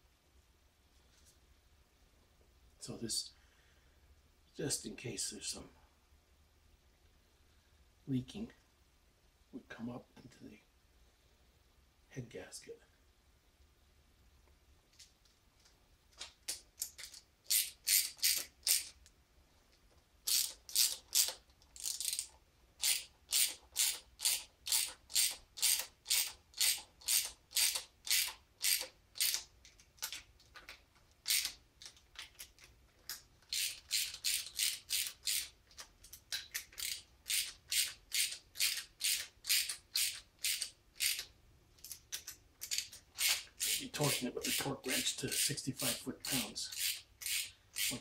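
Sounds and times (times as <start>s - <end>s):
socket ratchet clicking: 16.5s - 19.0s, 20.3s - 30.2s, 31.2s - 32.5s, 33.1s - 44.6s, 46.2s - 48.0s.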